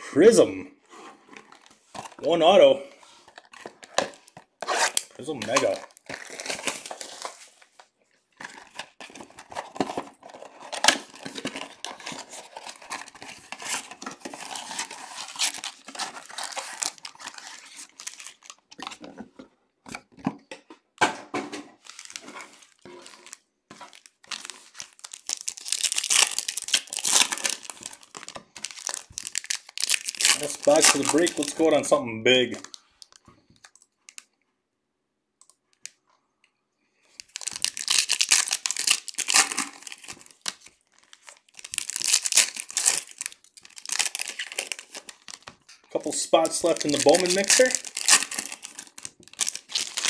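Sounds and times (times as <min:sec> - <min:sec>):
packs ripping and crinkling: 0:01.3 - 0:19.2, 0:21.8 - 0:34.3, 0:37.1 - 0:50.0
cards shuffled by hand: 0:30.3 - 0:31.8, 0:46.1 - 0:48.7.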